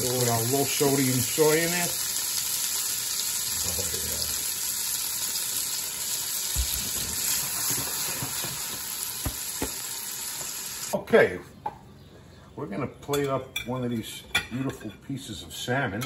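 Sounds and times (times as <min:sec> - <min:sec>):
vegetables sizzling in pan: 0:00.0 - 0:11.0.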